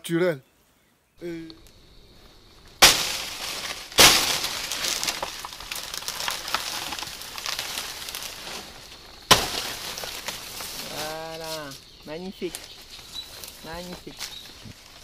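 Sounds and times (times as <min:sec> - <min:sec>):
large leaves crackling and rustling: 0:01.2 - 0:15.0
machete chopping plant stalk: 0:02.8 - 0:05.2, 0:09.3 - 0:09.7.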